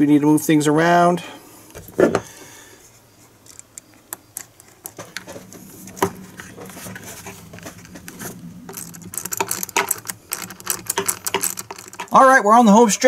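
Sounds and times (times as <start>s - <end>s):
rubber hose clicks and scrapes: 3.4s - 12.3s
tool tightening hose clamp: 8.7s - 12.2s.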